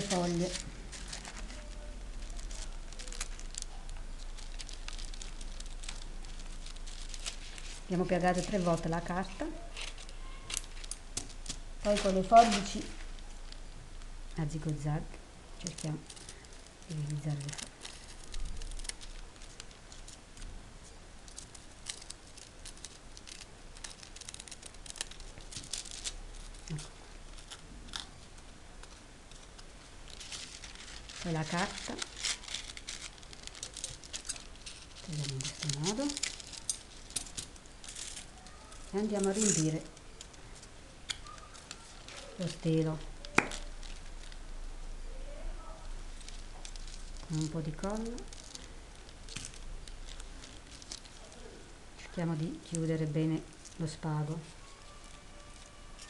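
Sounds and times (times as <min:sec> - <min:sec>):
crepe paper rustling and crinkling: 0:00.0 - 0:13.6, 0:15.6 - 0:56.0
scissors snipping paper: 0:21.3 - 0:28.1.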